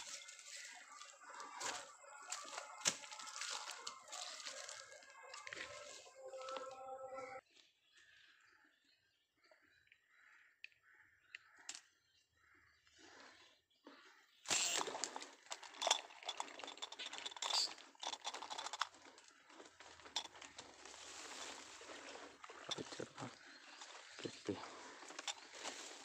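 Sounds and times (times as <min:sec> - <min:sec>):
plants rustling and crackling: 0:00.0 - 0:06.8, 0:17.6 - 0:26.0.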